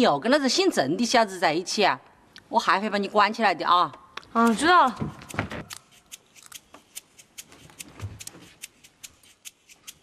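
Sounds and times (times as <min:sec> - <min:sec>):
light sharp ticking: 0:05.6 - 0:10.0.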